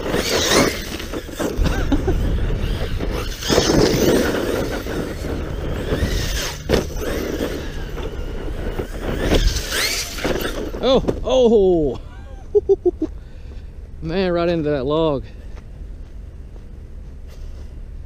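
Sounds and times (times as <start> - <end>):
electric motor whining: 0.0 - 11.2
tyres on loose dirt: 0.0 - 18.0.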